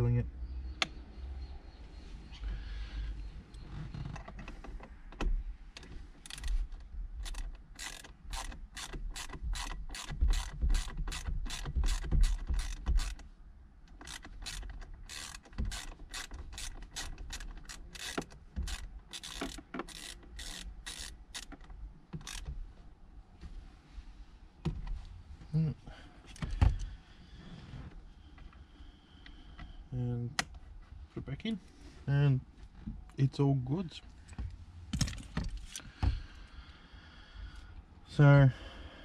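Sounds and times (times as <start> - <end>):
socket ratchet clicking: 6.2 - 6.5, 7.2 - 13.2, 13.9 - 22.5.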